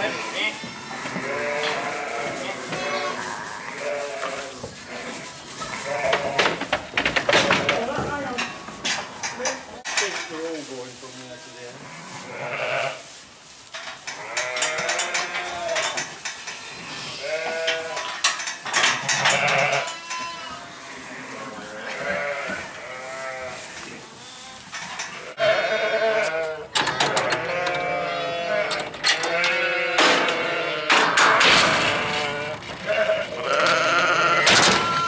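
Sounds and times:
sheep bleating: 0:00.0 - 0:06.4, 0:16.9 - 0:18.1, 0:19.2 - 0:23.6, 0:25.3 - 0:31.2, 0:31.8 - 0:35.0.

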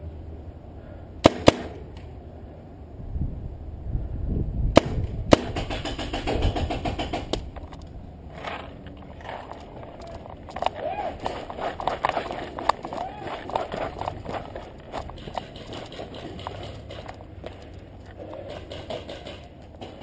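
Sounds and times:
paintball markers firing: 0:04.8 - 0:07.8.

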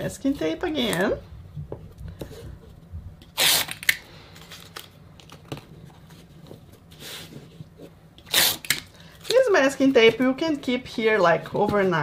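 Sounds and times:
tape pulled from roll and torn: 0:03.2 - 0:05.4, 0:08.2 - 0:09.4.

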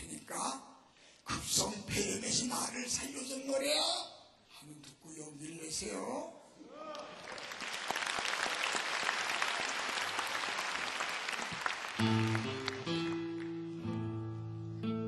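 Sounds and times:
audience applauding: 0:06.9 - 0:13.9
plucked guitar music: 0:12.0 - 0:15.0.

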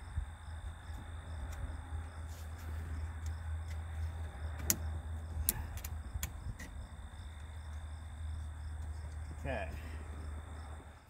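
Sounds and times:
insects chirping: 0:00.0 - 0:11.0
steady low hum: 0:00.0 - 0:11.0
light clicks of small parts: 0:05.4 - 0:07.8.

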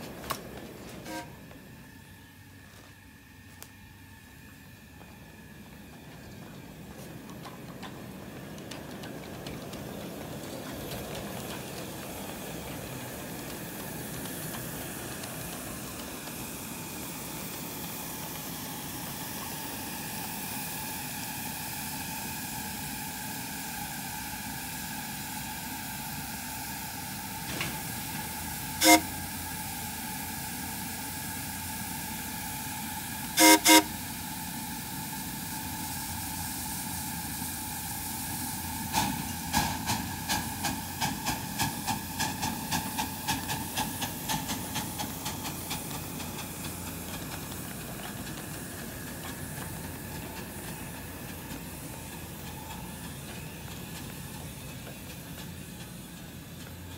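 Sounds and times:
locomotive exhaust beats: 0:00.0 - 0:56.9
steam locomotive hissing: 0:00.0 - 0:56.9
steam whistle blasts: 0:01.0 - 0:01.4, 0:28.8 - 0:29.4, 0:33.4 - 0:34.1.

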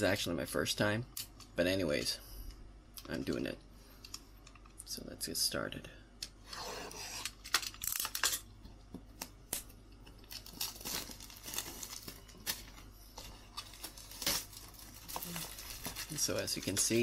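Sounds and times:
plastic shrink wrap tearing: 0:10.2 - 0:17.0.

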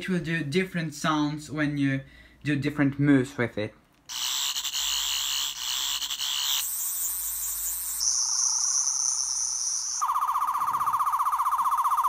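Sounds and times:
pulsing electronic warble: 0:04.1 - 0:12.0.

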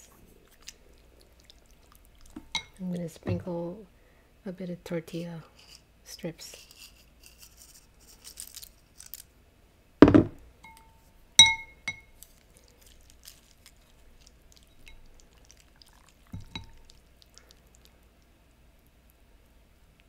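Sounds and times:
tortilla strips faintly crackling: 0:06.5 - 0:09.4, 0:12.0 - 0:20.0
glass bowl set down clinking: 0:10.0 - 0:12.1, 0:16.4 - 0:16.8
chopsticks knocking ceramic bowl: 0:11.4 - 0:12.0.

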